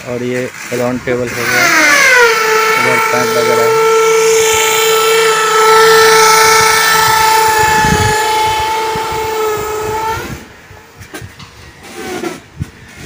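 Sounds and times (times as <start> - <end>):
loud pitched tone: 1.2 - 10.6.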